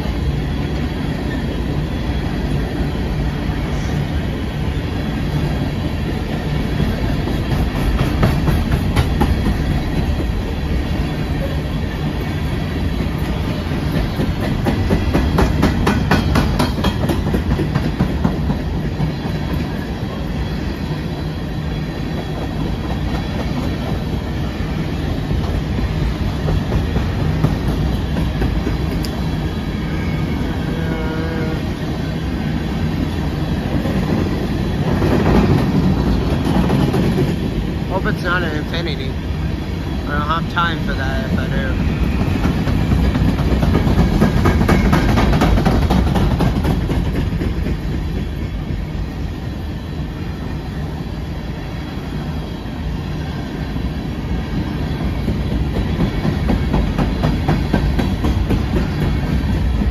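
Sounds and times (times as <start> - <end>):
freight train rumbling past: 0.0 - 59.9
wheels clacking over rail joints: 12.9 - 19.6, 42.2 - 48.4.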